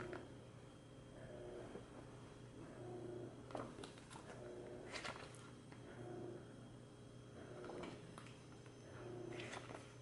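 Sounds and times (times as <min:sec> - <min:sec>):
faint low hum: 0:00.0 - 0:10.0
page turning: 0:03.5 - 0:05.5, 0:09.4 - 0:09.9.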